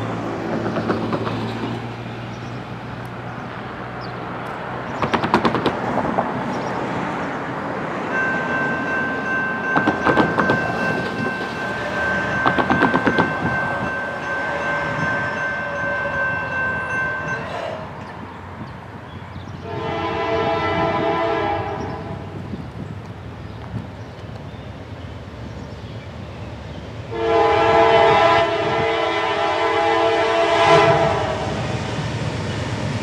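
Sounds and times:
distant train rumble: 0.0 - 33.0
high ringing tone: 8.1 - 17.6.

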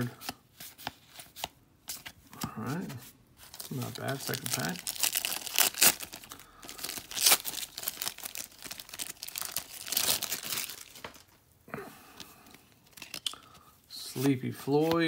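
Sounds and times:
foil wrapper tearing and crinkling: 3.5 - 11.3.

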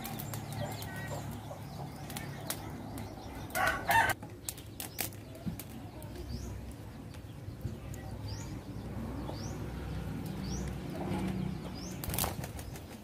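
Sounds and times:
chicken calling: 3.4 - 4.2.

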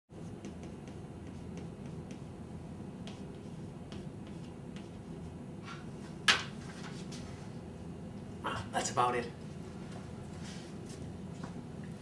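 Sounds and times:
chalk scraping: 0.2 - 2.4
chalk tapping on blackboard: 0.2 - 2.4, 3.0 - 5.3.

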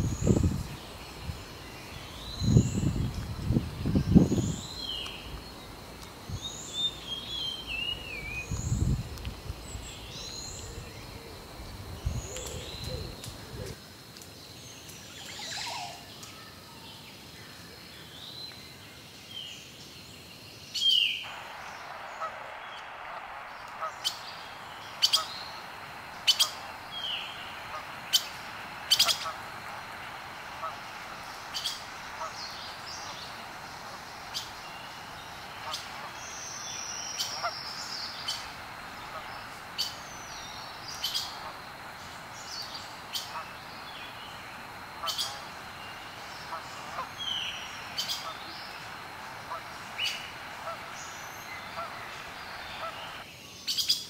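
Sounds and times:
steady hiss: 0.0 - 16.4, 20.6 - 53.7
birds chirping: 21.2 - 53.3.

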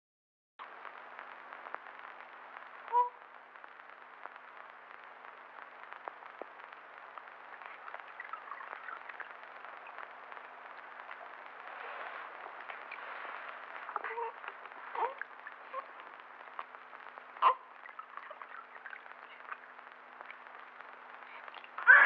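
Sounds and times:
tape hiss and crackle: 0.6 - 22.0.

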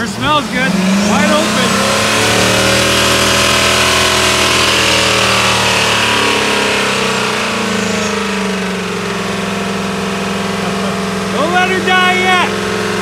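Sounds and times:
pickup engine revving high: 0.0 - 13.0.

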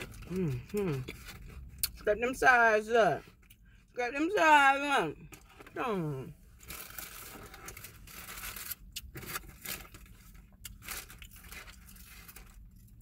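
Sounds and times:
paper wrapper rustling and tearing: 6.6 - 12.9.

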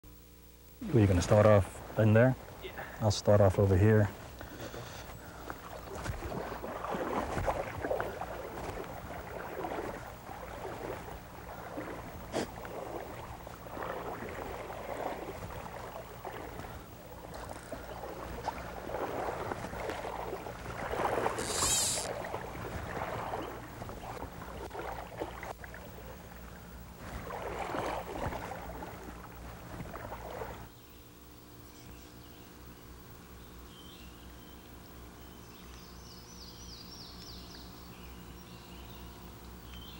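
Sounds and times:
wading through shallow water: 0.8 - 30.8
brief sharp hiss: 21.4 - 22.1.

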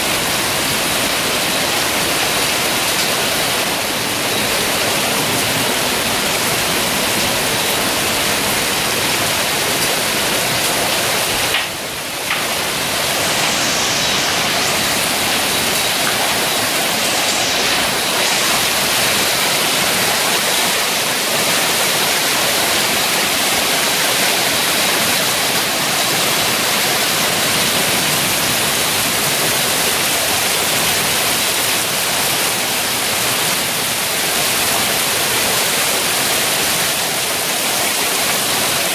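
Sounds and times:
hail and heavy rain falling: 0.0 - 13.6.

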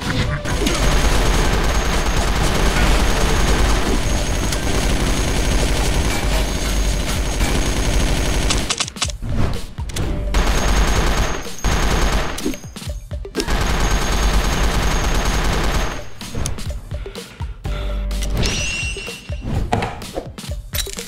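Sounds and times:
music: 0.0 - 21.0
automatic gunfire bursts: 0.7 - 8.9.

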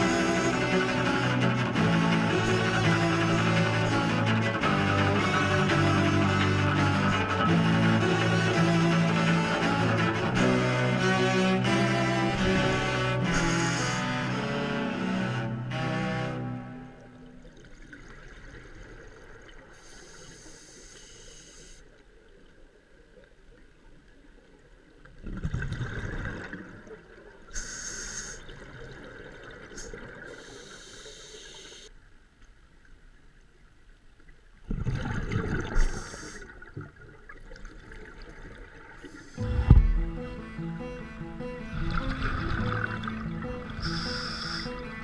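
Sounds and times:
hissing regulator inhalations: 13.2 - 14.4, 19.8 - 21.8, 27.6 - 28.5, 29.8 - 31.9, 35.9 - 36.6, 43.7 - 45.0.

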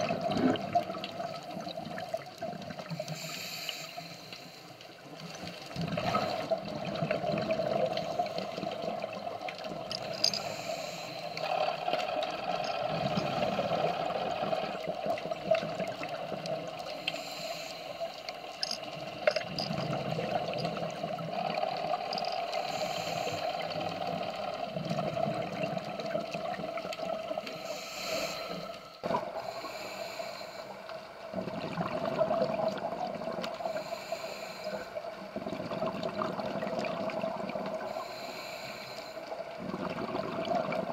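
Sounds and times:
rush of exhaled bubbles: 0.0 - 3.0, 5.7 - 10.4, 29.0 - 29.6, 31.3 - 33.8, 35.1 - 38.0, 39.4 - 40.9
steady underwater hum: 0.0 - 40.9
diver breathing on regulator: 2.9 - 4.8, 9.9 - 15.0, 16.9 - 19.7, 21.4 - 24.6, 27.4 - 31.1, 33.6 - 35.2, 37.8 - 39.4.

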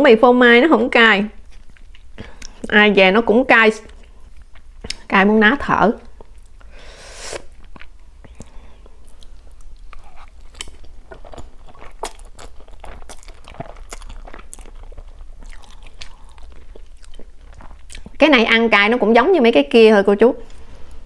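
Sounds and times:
slurping and chewing: 6.2 - 18.2
airy sucking sound: 6.7 - 7.6.

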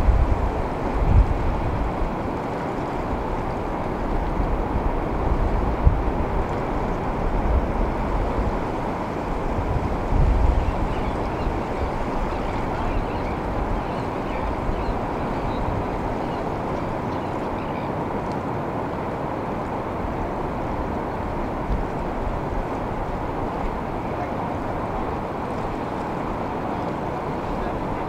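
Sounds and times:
wind bumps on microphone: 0.0 - 2.4, 3.1 - 16.1
ocean surf rushing: 0.0 - 28.0.

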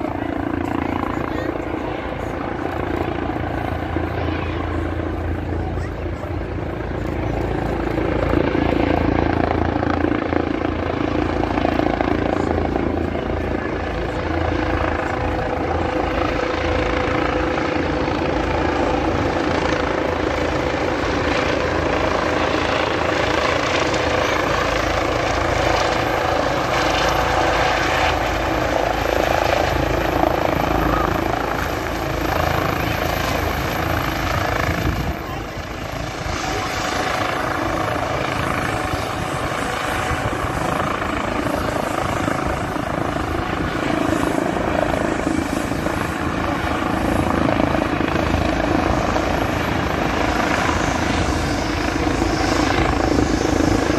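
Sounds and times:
helicopter circling overhead: 0.0 - 53.9
helicopter rotor and turbine whine: 0.0 - 53.9.

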